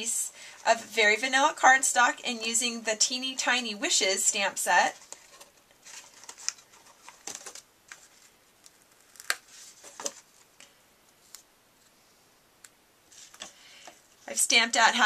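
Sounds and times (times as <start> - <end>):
paper rustling: 4.8 - 10.6.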